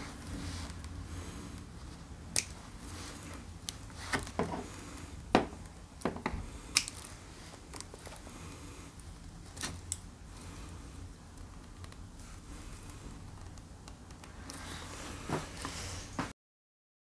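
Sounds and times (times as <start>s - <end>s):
pliers clicking and snipping: 2.3s - 2.6s, 6.7s - 7.1s.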